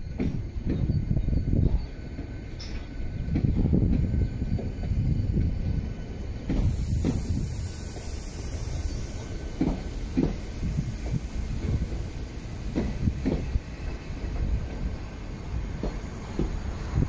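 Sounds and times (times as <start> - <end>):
train wheels rumbling on rail: 0.0 - 17.0
wheels clacking over rail joints: 9.4 - 17.0.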